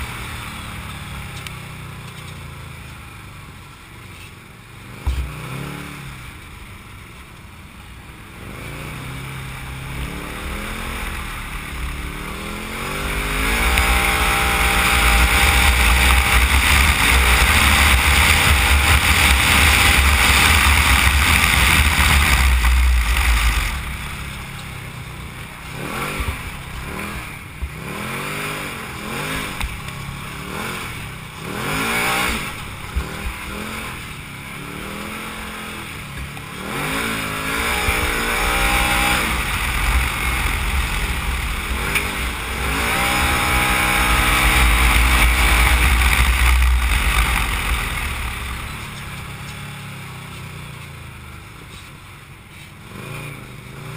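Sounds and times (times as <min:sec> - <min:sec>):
off-road vehicle engine revving: 0:04.2 - 0:06.4, 0:08.2 - 0:53.9.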